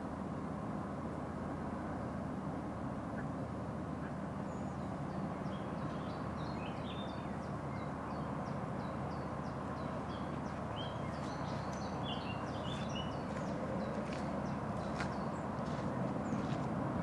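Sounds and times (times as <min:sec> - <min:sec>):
steady low hum: 0:00.0 - 0:17.0
songbird singing: 0:03.1 - 0:16.9.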